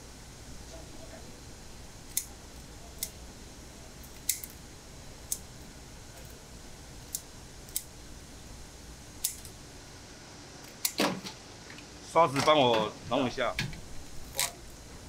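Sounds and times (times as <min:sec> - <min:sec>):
faint low hum: 0:00.0 - 0:15.0
scissors snipping: 0:04.0 - 0:04.6.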